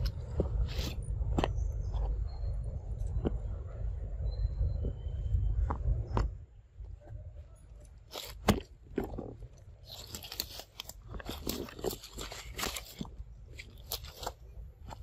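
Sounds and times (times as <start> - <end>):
dry twigs and leaves crunching: 8.1 - 15.0.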